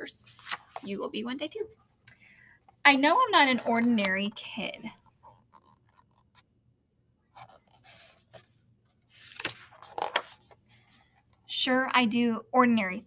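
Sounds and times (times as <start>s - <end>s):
book pages rustling and scraping: 0.2s - 1.0s, 3.4s - 6.5s, 7.3s - 11.4s.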